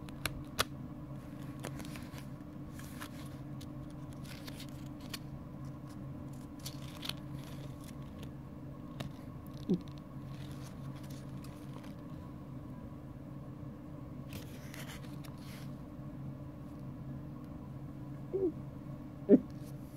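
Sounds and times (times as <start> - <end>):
steady low hum: 0.0 - 19.9
paper pages riffling: 1.2 - 8.3, 8.9 - 12.1, 14.3 - 15.7.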